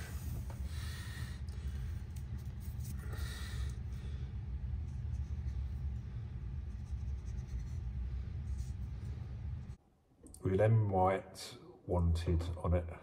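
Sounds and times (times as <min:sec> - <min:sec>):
low background rumble: 0:00.0 - 0:09.8
marker pen scratching on pipe: 0:06.6 - 0:09.0.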